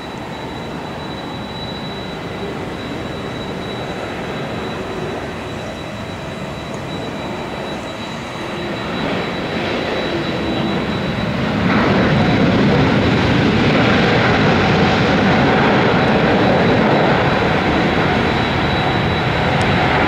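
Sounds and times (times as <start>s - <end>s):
faint high engine whine: 0.0s - 20.0s
jet engines roaring: 0.0s - 20.0s.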